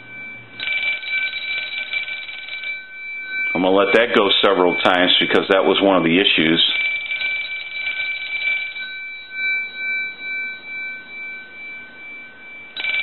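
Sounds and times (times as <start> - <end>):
telephone bell clatter: 0.0 - 2.9, 6.5 - 9.2, 12.8 - 13.0
ringer gongs ringing on: 0.0 - 13.0.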